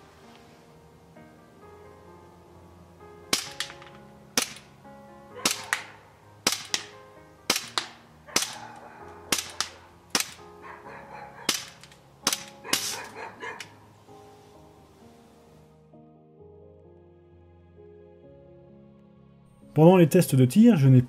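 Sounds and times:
airsoft pistol shots: 3.3s - 4.7s, 5.4s - 8.6s, 9.3s - 10.4s, 11.5s - 13.0s.

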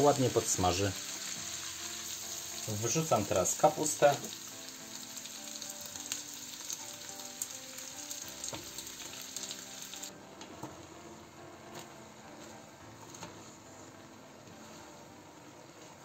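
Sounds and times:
food sizzling in hot oil: 0.0s - 10.2s
wooden spatula stirring: 11.7s - 16.0s.

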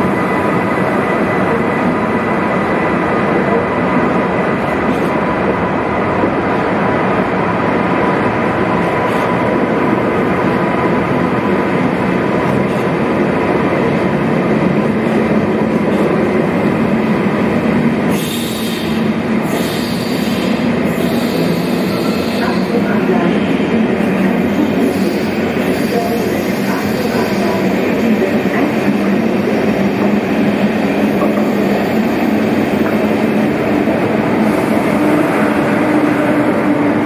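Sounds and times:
train rolling slowly: 0.0s - 37.0s
hiss: 18.1s - 22.4s.

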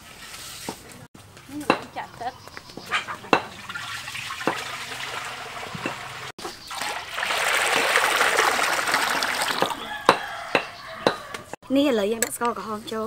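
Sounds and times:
water pouring into a wok: 3.5s - 9.9s.

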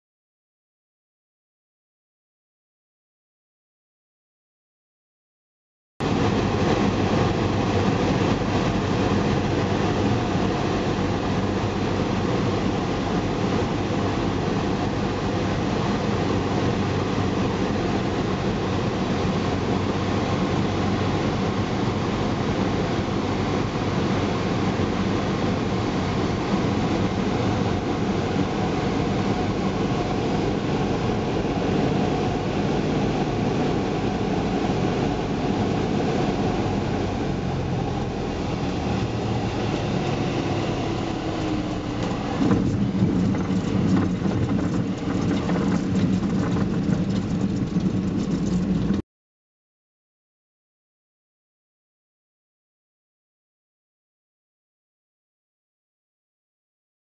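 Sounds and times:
light aircraft engine and propeller: 6.0s - 49.0s
wheels rumbling on grass strip: 39.8s - 49.0s.

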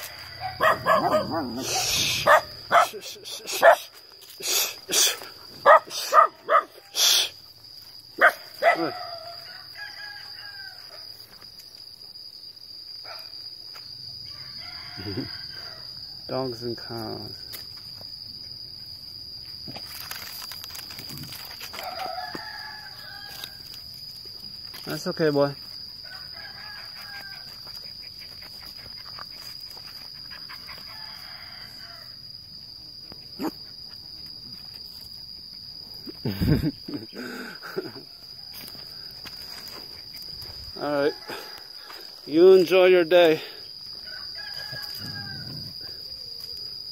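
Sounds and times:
faint rooster crowing: 0.0s - 1.0s, 9.0s - 11.1s, 14.2s - 16.3s, 21.7s - 23.7s, 26.0s - 27.7s, 30.8s - 32.2s, 40.7s - 42.2s, 43.9s - 46.4s
high-pitched insect drone: 0.0s - 46.9s.

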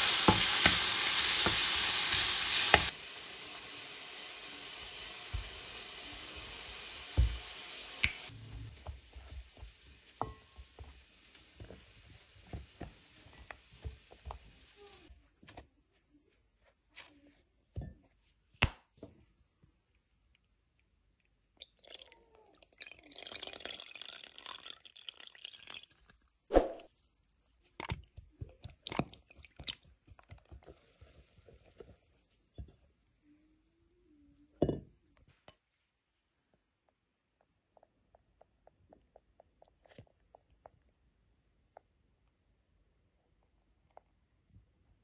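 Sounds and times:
milk pouring: 21.6s - 32.8s.

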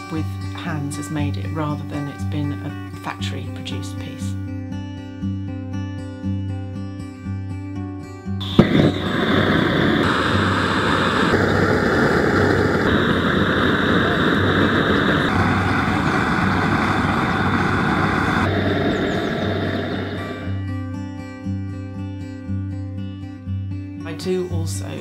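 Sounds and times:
gas flame roar: 8.4s - 20.6s.

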